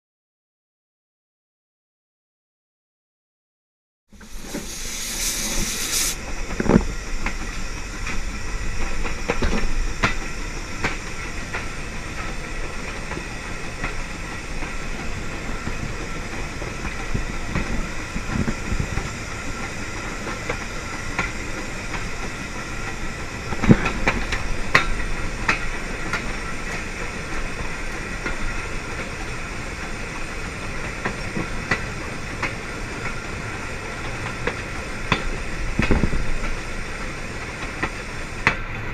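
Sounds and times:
steam locomotive running: 0:04.1 - 0:38.9
steam hissing: 0:04.2 - 0:38.9
wheels clicking over rail joints: 0:06.6 - 0:38.9.

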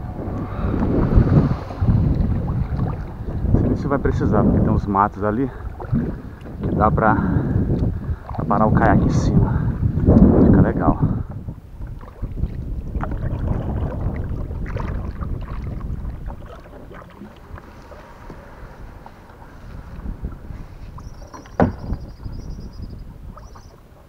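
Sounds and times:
paddle strokes splashing in water: 0:00.0 - 0:04.7, 0:05.6 - 0:06.8, 0:11.8 - 0:22.4
wind rumble on microphone: 0:00.0 - 0:24.0.

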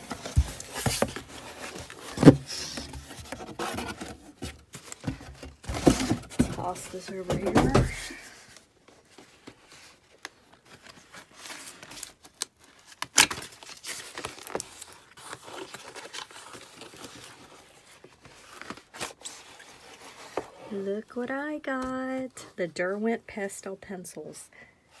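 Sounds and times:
cardboard box being torn open: 0:11.3 - 0:17.4.

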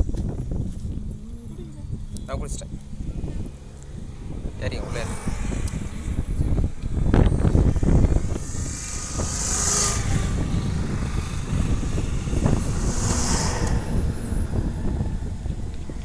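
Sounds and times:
highway traffic rumble: 0:00.0 - 0:16.0.

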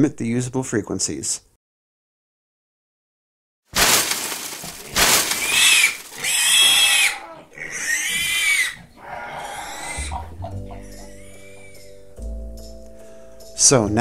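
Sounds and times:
pig squealing: 0:04.4 - 0:12.0.

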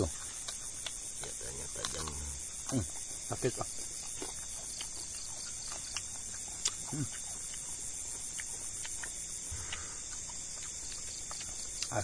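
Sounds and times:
crickets trilling: 0:00.0 - 0:12.0
person murmuring: 0:06.9 - 0:07.1.

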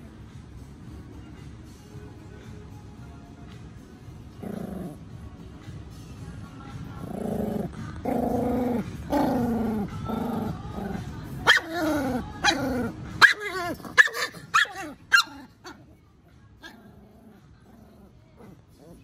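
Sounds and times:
dog growling: 0:04.3 - 0:05.2, 0:06.9 - 0:16.0, 0:16.6 - 0:19.0.

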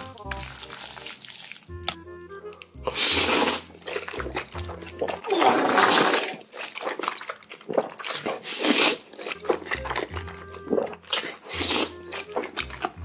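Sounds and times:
background music: 0:00.0 - 0:06.3, 0:08.1 - 0:13.0
loud noodle slurping: 0:02.8 - 0:13.0.

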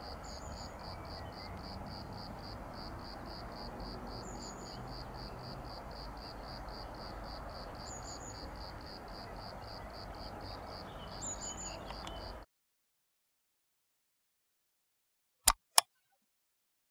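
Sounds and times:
cricket chirping: 0:00.0 - 0:12.4.

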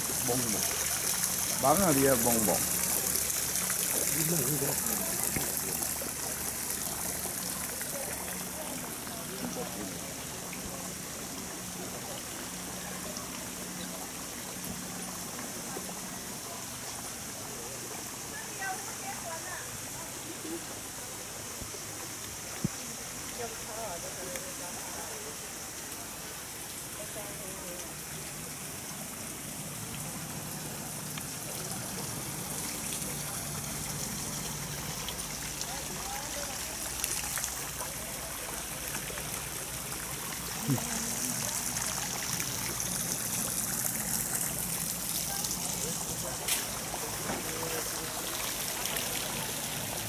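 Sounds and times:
water hissing: 0:00.0 - 0:13.0, 0:28.2 - 0:50.0.

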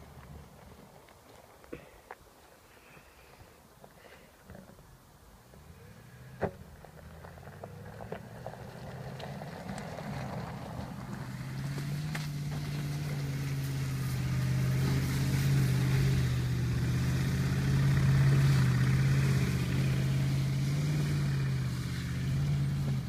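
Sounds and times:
suv engine droning: 0:05.5 - 0:23.0.

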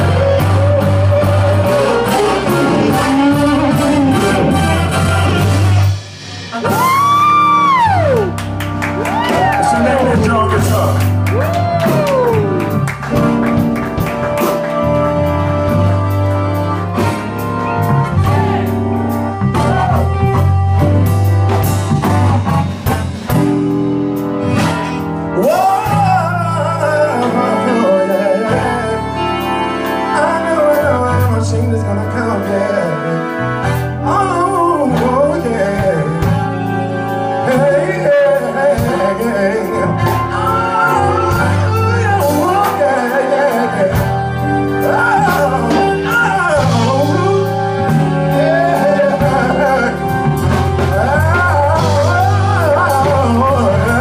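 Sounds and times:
man singing: 0:00.0 - 0:05.9, 0:09.3 - 0:12.8, 0:25.3 - 0:54.0
live band playing blues-soul: 0:00.0 - 0:54.0.

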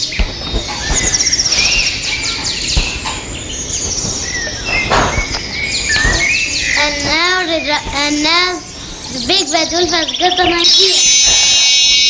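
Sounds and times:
soft knocks: 0:00.0 - 0:08.4
birds chirping and trilling: 0:00.0 - 0:12.0.

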